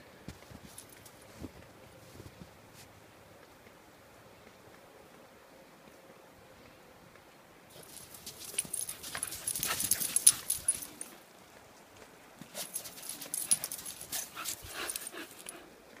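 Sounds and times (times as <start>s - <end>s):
dogs playing: 7.7s - 11.2s, 12.4s - 15.8s.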